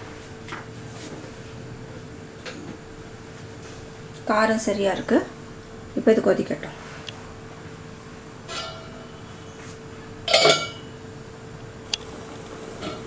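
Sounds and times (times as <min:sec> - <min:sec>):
faint steady hum: 0:00.0 - 0:13.0
metal lid clinking on pan: 0:10.3 - 0:10.8.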